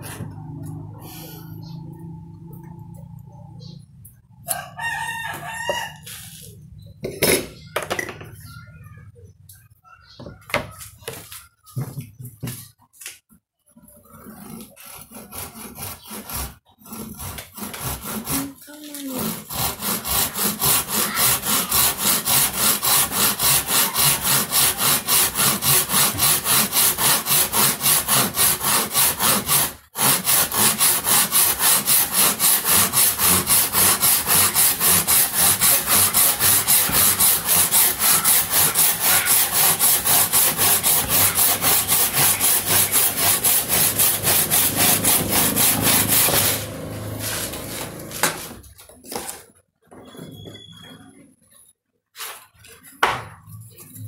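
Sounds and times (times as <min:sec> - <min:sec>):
hand saw cutting wood: 0:13.8 - 0:49.4.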